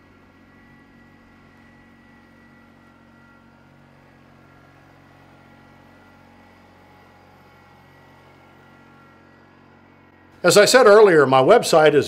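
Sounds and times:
tractor diesel engine running: 0:00.0 - 0:12.0
high whine: 0:10.4 - 0:12.0.

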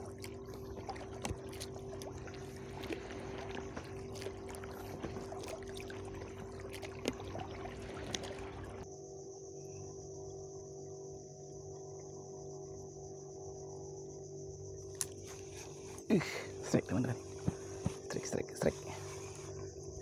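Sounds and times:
water splashing along boat hull: 0:00.0 - 0:08.8, 0:16.6 - 0:19.6
steady low hum: 0:00.0 - 0:20.0.

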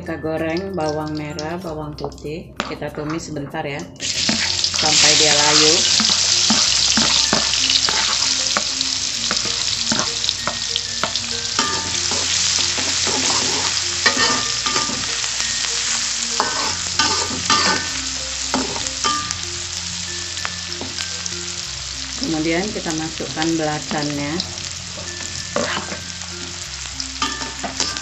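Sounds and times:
metal spatula scraping wok: 0:04.0 - 0:19.4, 0:24.9 - 0:26.6
food sizzling in hot oil: 0:04.0 - 0:28.0.

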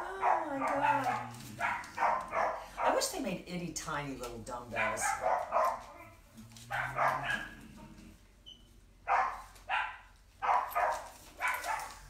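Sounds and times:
dog barking: 0:00.1 - 0:03.0, 0:04.7 - 0:07.8, 0:09.0 - 0:12.0.

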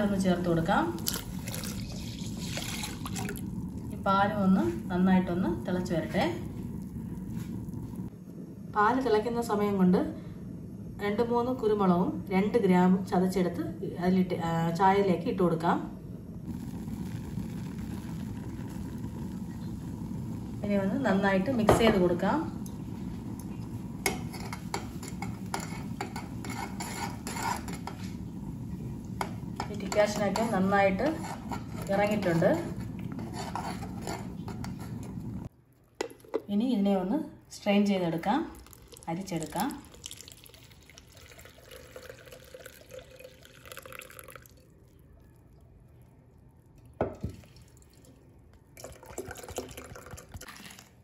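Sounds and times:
tea pouring into a steel mug: 0:00.9 - 0:03.9, 0:16.5 - 0:20.6, 0:38.6 - 0:45.7, 0:46.7 - 0:51.0
liquid and handling noises: 0:01.0 - 0:03.8, 0:38.6 - 0:51.0.

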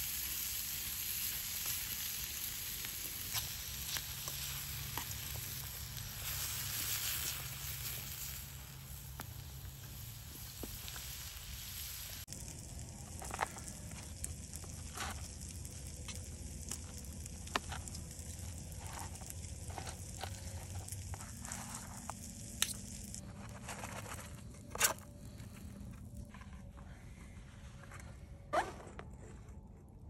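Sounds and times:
food sizzling in a frying pan: 0:00.0 - 0:23.2.

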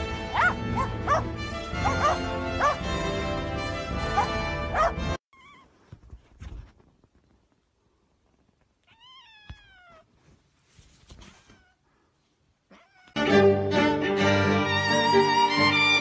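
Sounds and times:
cat meowing: 0:05.3 - 0:05.7, 0:08.8 - 0:10.1, 0:12.7 - 0:13.2
loud violin music: 0:13.2 - 0:16.0.

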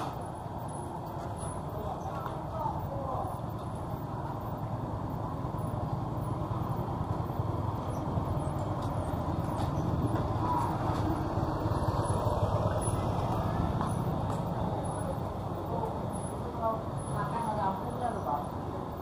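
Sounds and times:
street traffic rumble: 0:00.0 - 0:19.0
vehicle engine: 0:00.0 - 0:19.0.

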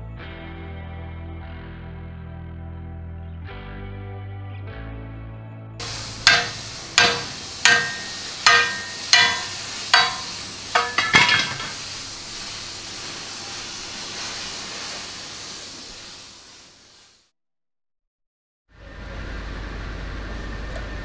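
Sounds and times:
hammer striking metal plate: 0:05.8 - 0:11.8
steady hiss: 0:05.8 - 0:17.3.

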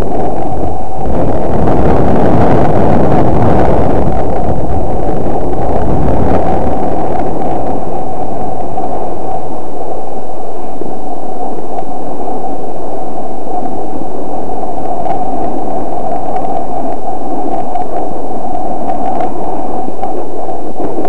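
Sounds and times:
wind rushing over microphone: 0:00.0 - 0:21.0.

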